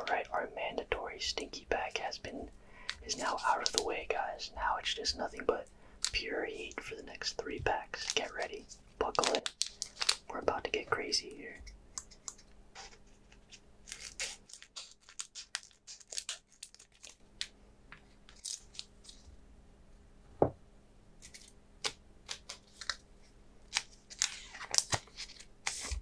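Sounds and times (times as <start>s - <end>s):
foil wrapper crinkling and tearing: 7.9s - 10.3s, 12.0s - 17.5s, 18.2s - 19.3s, 21.2s - 23.0s, 23.6s - 26.0s.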